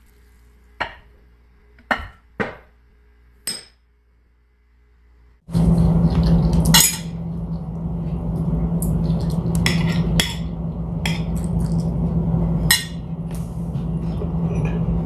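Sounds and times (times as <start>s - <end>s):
steady low hum: 5.1s - 15.0s.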